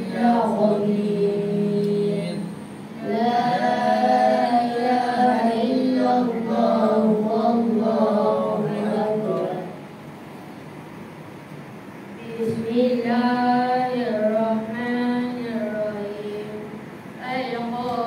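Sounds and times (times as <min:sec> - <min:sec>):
young voices chanting together: 0:00.0 - 0:09.8.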